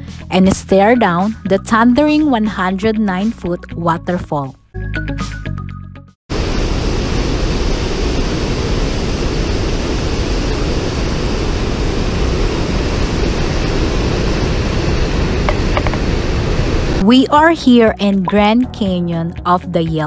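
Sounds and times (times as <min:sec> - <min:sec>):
waterfall roaring: 0:06.3 - 0:17.0.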